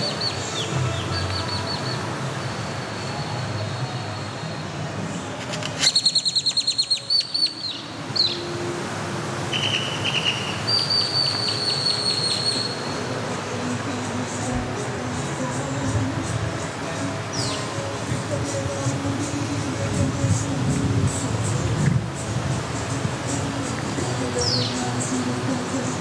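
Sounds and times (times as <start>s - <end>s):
birds calling: 0.0s - 4.8s, 5.5s - 8.6s, 9.4s - 26.0s
steady background hush: 0.0s - 26.0s
bird whistle: 5.8s - 8.4s, 9.5s - 12.9s.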